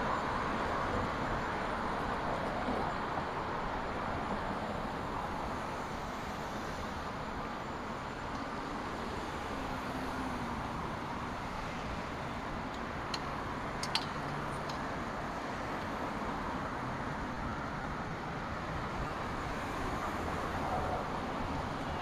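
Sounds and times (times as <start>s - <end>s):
city traffic passing: 0.0s - 22.0s
sharp clicks: 12.7s - 14.8s.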